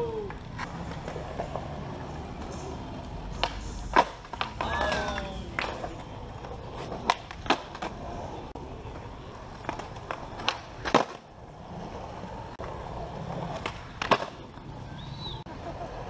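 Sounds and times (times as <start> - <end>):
skateboard wheels rolling on concrete: 0.0 - 16.0
skateboard wooden clacks: 0.2 - 8.0, 8.9 - 11.2, 13.3 - 14.6.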